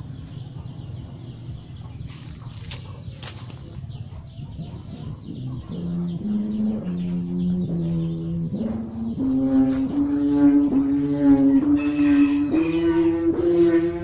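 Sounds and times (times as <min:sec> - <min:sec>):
kite hummer buzzing drone: 0:00.0 - 0:14.0
rough low rumble: 0:00.0 - 0:14.0.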